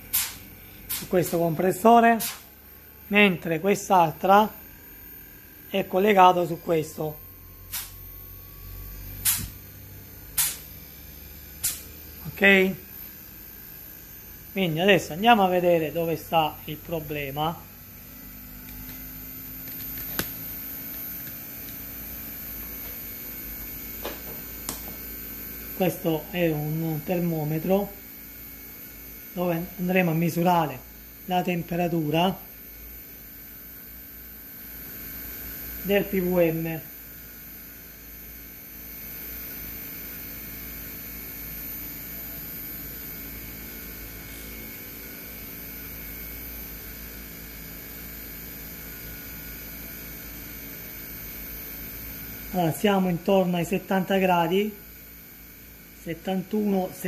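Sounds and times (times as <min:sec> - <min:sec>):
compressors humming: 0:00.0 - 0:28.2
sharp click: 0:00.1 - 0:01.1, 0:02.2 - 0:02.5, 0:07.7 - 0:08.0, 0:09.2 - 0:09.6, 0:10.4 - 0:10.6, 0:11.6 - 0:11.9.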